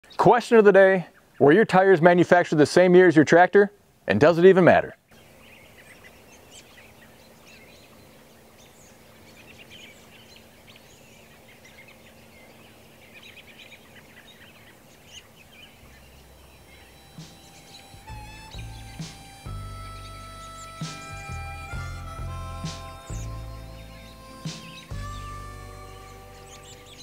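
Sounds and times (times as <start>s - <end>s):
birds chirping: 0.0s - 27.0s
music: 16.6s - 27.0s.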